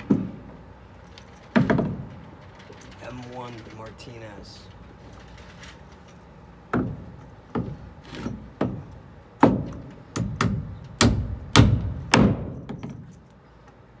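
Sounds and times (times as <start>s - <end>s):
hammer striking nail: 6.7s - 8.8s, 9.4s - 13.0s.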